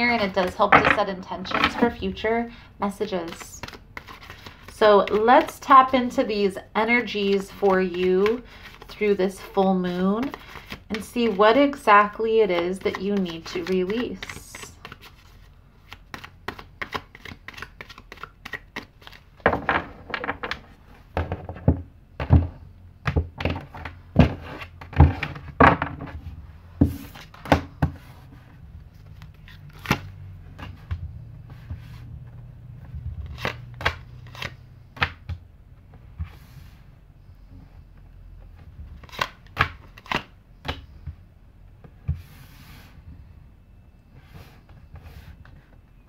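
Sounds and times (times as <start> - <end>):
cards snapping and tapping: 15.9 - 19.2.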